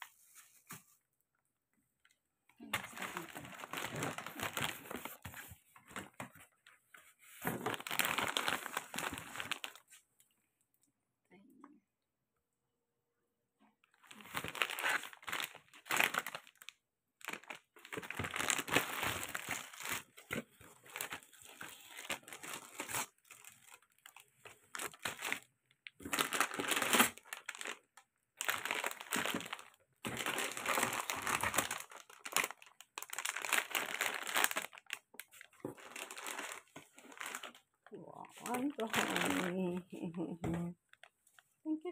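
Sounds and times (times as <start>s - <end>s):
plastic packaging crinkling: 2.6s - 6.7s, 7.3s - 10.0s, 13.9s - 40.2s.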